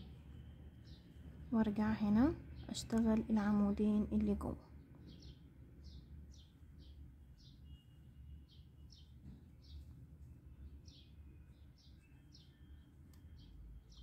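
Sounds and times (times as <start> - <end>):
steady low hum: 0.0 - 8.3
faint bird chirps: 5.0 - 9.9, 10.5 - 14.0.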